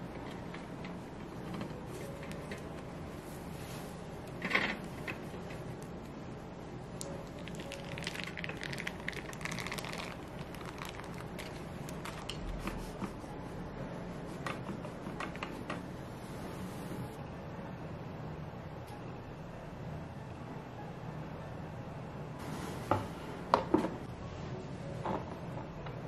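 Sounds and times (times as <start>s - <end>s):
soft scraping rustle: 3.2s - 4.2s.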